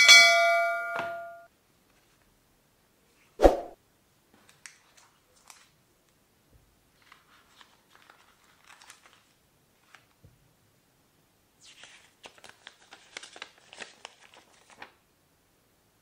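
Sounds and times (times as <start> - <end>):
paper and plastic rustling: 6.9 - 10.2, 11.8 - 15.0.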